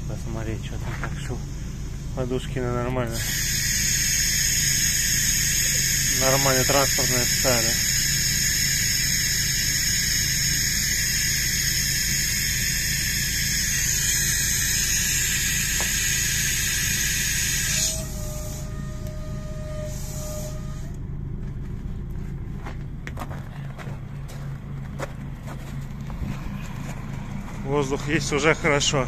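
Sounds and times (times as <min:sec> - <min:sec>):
truck engine idling: 0:00.0 - 0:29.0
compressed air hissing: 0:01.0 - 0:21.0.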